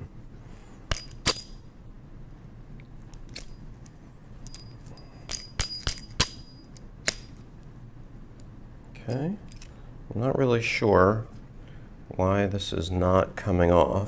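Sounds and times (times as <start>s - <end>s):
small steel gears clinking: 0.9s - 1.9s, 4.4s - 7.4s.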